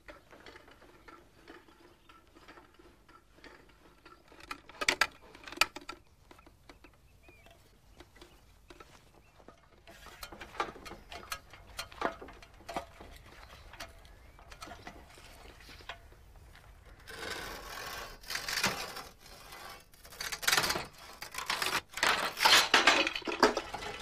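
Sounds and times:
metal parts clicking and knocking: 0.0s - 17.4s, 20.0s - 24.0s
metal clatter: 17.1s - 24.0s.

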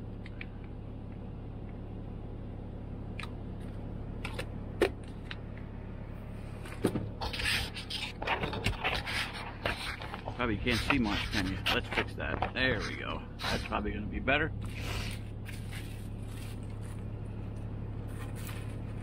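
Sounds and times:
truck engine idling: 0.0s - 19.0s
utensil clattering and scraping: 6.8s - 13.8s.

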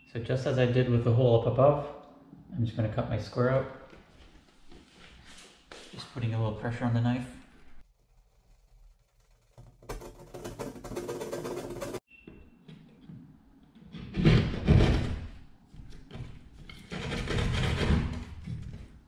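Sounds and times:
hand saw cutting drywall: 16.8s - 18.5s.

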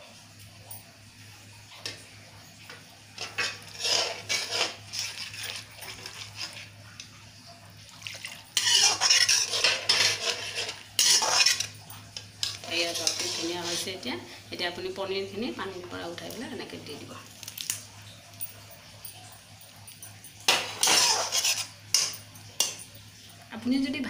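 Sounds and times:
spoon scraping a metal pot: 3.2s - 7.1s, 8.3s - 14.0s, 20.5s - 22.9s.

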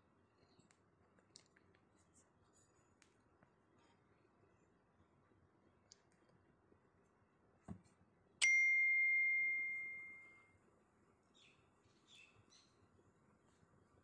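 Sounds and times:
bell-like chime: 8.4s - 10.6s.

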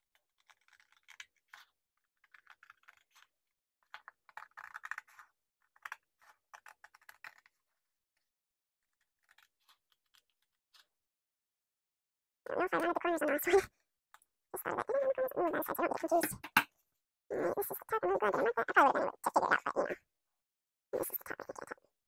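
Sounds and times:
scissors cutting paper: 0.1s - 3.3s.

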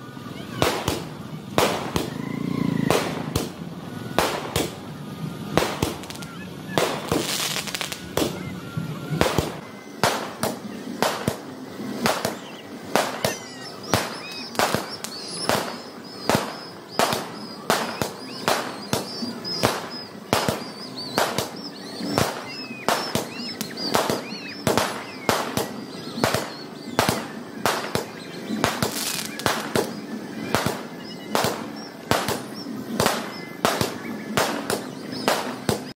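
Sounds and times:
fireworks banging: 0.0s - 36.0s.

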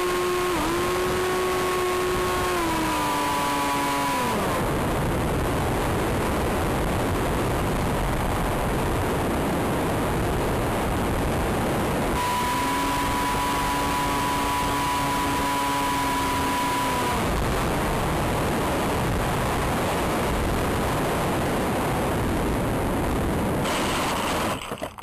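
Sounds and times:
small electric motor whining: 12.2s - 17.4s.

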